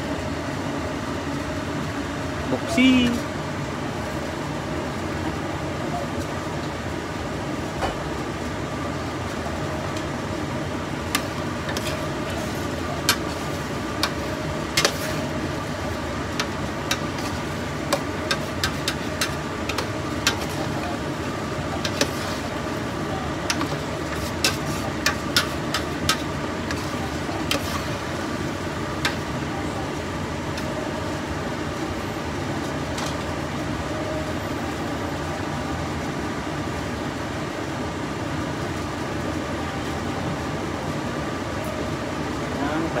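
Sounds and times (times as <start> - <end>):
utensil scraping metal pot: 11.1 - 15.4, 16.4 - 21.0, 21.7 - 22.5, 23.5 - 28.1.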